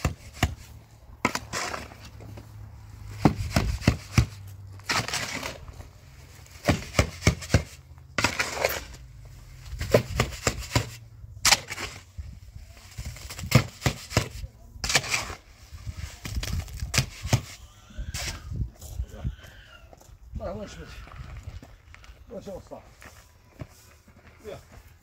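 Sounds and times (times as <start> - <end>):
rustling scrapes: 0.0 - 17.6.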